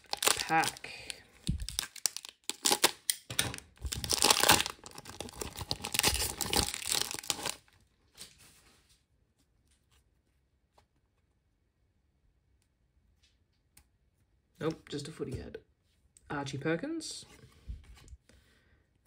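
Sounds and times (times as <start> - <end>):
wrapper tearing and crinkling: 0.0 - 8.4.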